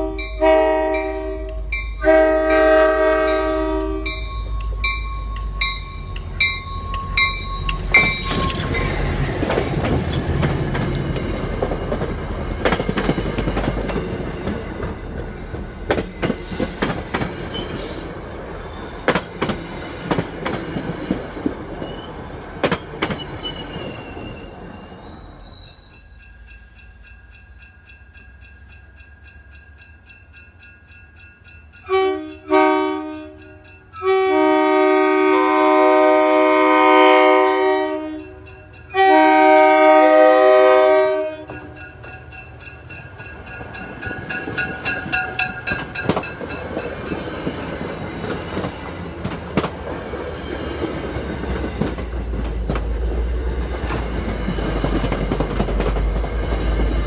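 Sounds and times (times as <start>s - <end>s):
locomotive air horn: 0.0s - 4.2s, 31.9s - 41.7s
train wheels clicking on rails: 4.0s - 25.2s, 41.5s - 57.0s
faint wheel squeal: 22.8s - 26.4s.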